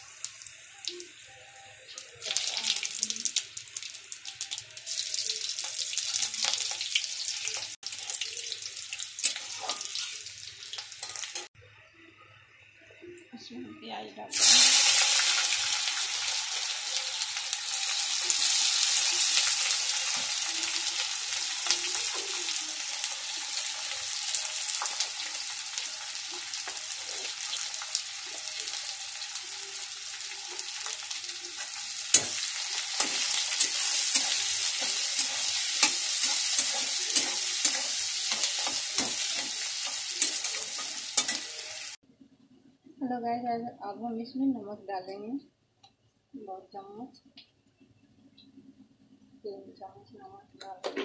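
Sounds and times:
onions sizzling in oil: 0.0 - 11.5, 14.3 - 42.0
metal spatula scraping a pan: 9.2 - 11.5, 29.4 - 42.0.

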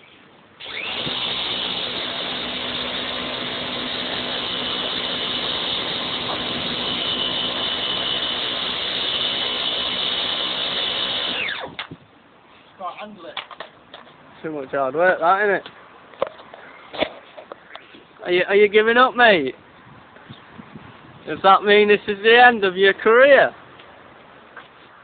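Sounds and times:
pressure washer motor humming: 0.6 - 11.8.

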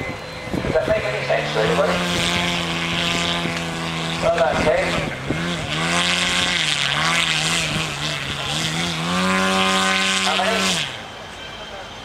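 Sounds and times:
model aircraft engine running: 0.0 - 12.0.

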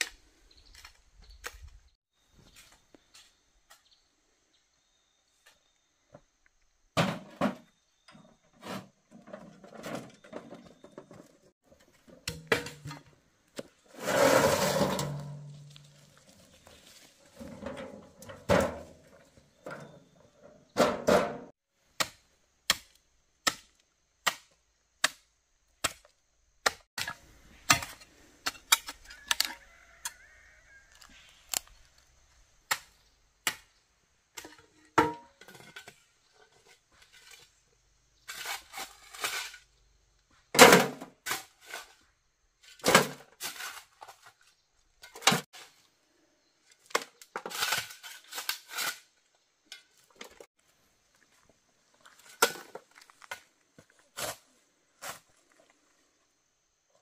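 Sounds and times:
scraping: 8.5 - 21.5.

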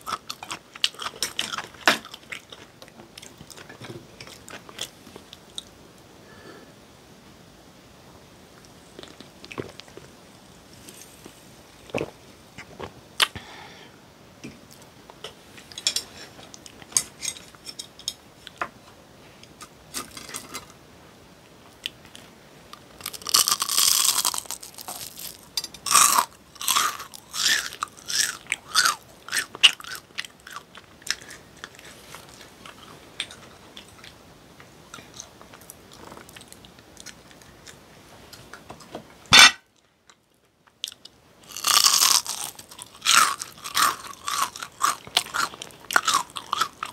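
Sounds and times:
crunching and chewing fried food: 0.0 - 5.7, 8.6 - 13.4, 21.8 - 34.2, 34.9 - 37.8, 40.1 - 46.9.

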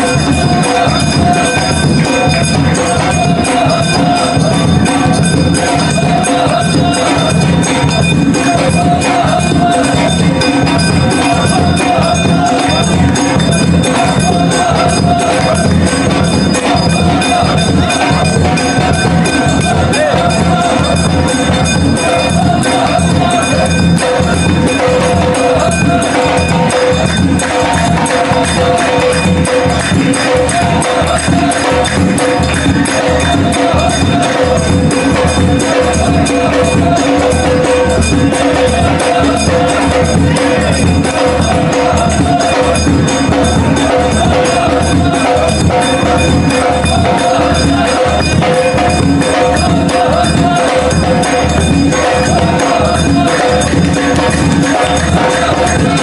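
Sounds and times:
fast drumbeats: 0.0 - 56.0
jingling hand percussion: 0.0 - 56.0.

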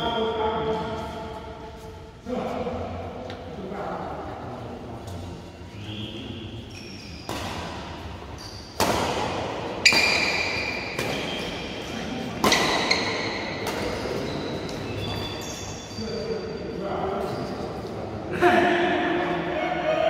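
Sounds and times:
rackets hitting shuttlecock: 7.1 - 11.7, 12.3 - 14.8.

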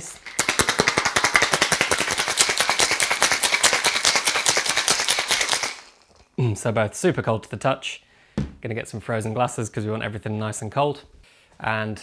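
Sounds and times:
ice rattling in cocktail shaker: 0.0 - 6.3.

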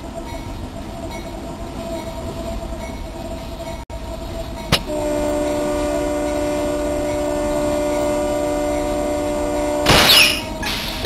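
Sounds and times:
train rumbling: 0.0 - 11.0
locomotive air horn chord: 4.8 - 10.7.

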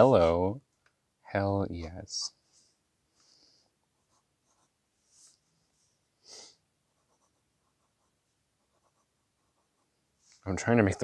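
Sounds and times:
pen nib scratching paper: 7.0 - 9.9.

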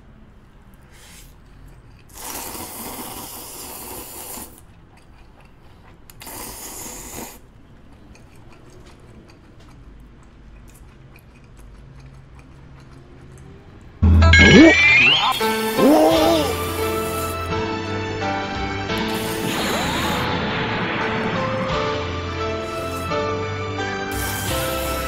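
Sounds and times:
person slurping noodles: 2.1 - 4.7, 6.2 - 7.5, 15.3 - 17.5, 18.9 - 20.3, 22.6 - 23.2, 24.1 - 25.0.

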